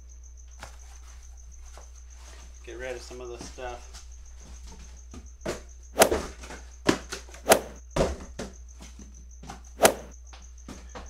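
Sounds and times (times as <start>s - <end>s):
cardboard boxes knocking and thumping: 3.4s - 11.0s.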